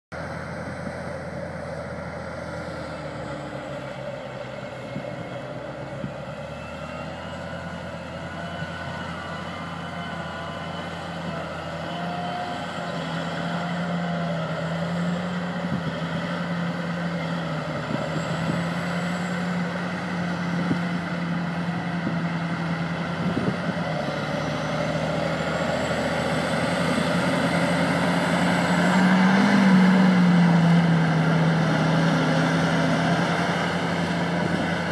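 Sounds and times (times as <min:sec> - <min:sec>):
tractor diesel engine under load: 0:00.1 - 0:34.9.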